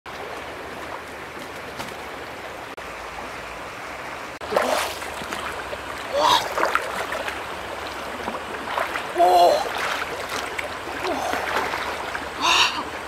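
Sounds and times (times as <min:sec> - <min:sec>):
fast-flowing river rushing: 0:00.1 - 0:13.0.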